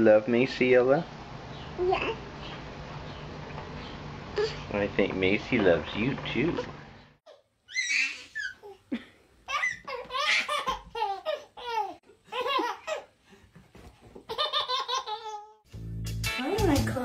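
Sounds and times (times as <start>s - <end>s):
baby laughing: 7.3s - 13.2s, 14.2s - 15.6s.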